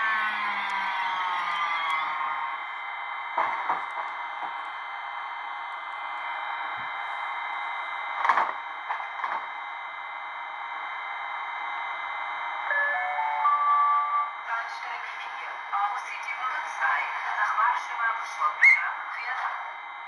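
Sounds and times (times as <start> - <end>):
model locomotive whirring and whining: 0.0 - 14.9.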